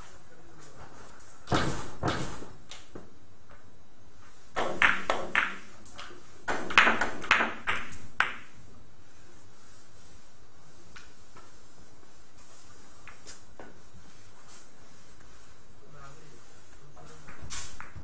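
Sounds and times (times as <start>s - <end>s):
billiard balls clacking: 4.6s - 8.6s.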